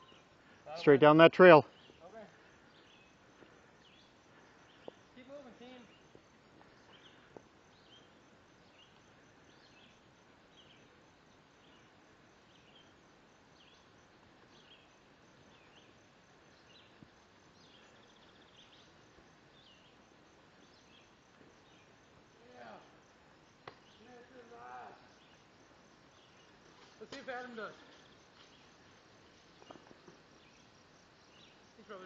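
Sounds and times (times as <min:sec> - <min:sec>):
faint bird chirps: 0:01.7 - 0:22.8.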